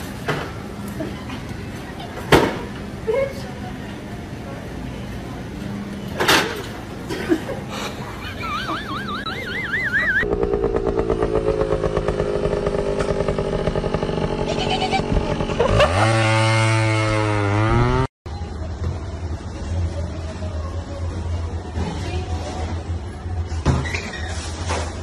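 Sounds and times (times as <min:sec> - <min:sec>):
warbling high tone: 0:08.4 - 0:10.5
vehicle engine revving: 0:10.0 - 0:18.1.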